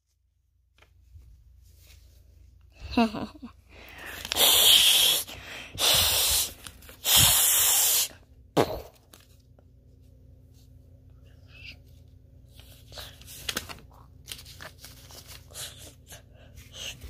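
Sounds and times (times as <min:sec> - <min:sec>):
loud hissing rushing bursts: 0:04.4 - 0:08.1.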